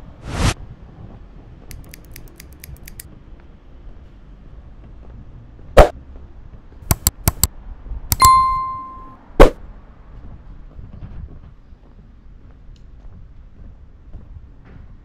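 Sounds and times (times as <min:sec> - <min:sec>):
quick clicks: 0:01.7 - 0:03.1, 0:06.9 - 0:07.5
short ringing ding: 0:08.1 - 0:09.2.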